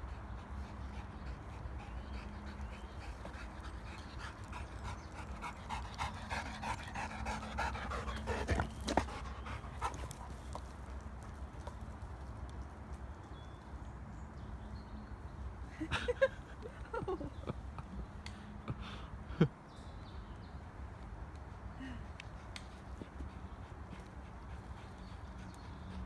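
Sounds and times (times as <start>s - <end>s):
dog panting: 0.0s - 10.7s, 22.4s - 26.0s.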